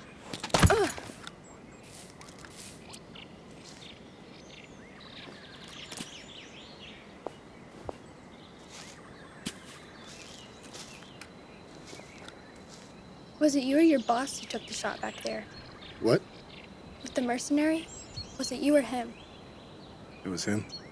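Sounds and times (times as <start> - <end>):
faint bird chirps: 0.0 - 20.9.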